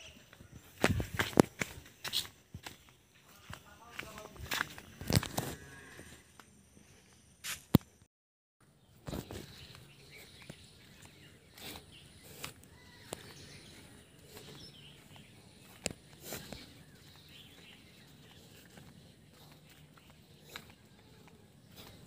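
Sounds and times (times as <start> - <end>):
footsteps on muddy path: 0.0 - 7.8, 8.8 - 22.0
faint bird chirps: 8.8 - 22.0.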